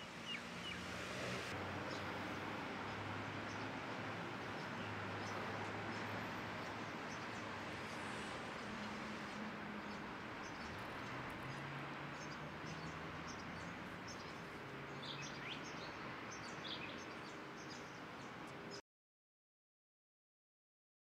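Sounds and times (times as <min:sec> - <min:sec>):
small birds chirping: 0:03.5 - 0:18.8.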